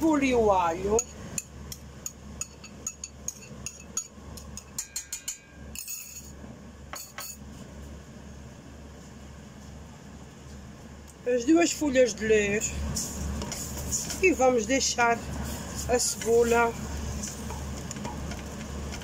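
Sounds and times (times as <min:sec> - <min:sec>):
steady low hum: 0:00.0 - 0:19.0
metal spoon clinking on bowl: 0:01.0 - 0:06.3.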